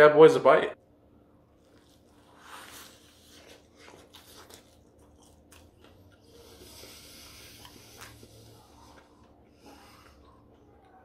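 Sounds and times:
crunching and chewing: 1.4 - 11.0.

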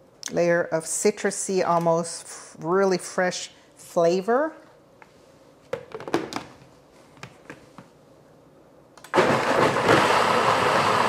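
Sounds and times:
blender running loud: 9.1 - 11.0.

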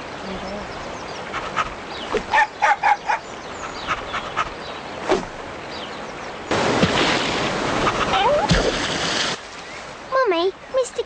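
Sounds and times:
loud splashing: 6.5 - 9.6.

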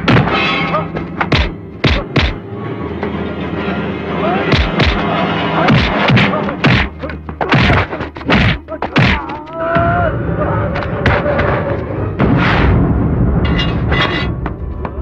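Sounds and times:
punch hits with swishes: 1.3 - 2.4, 5.7 - 9.2.

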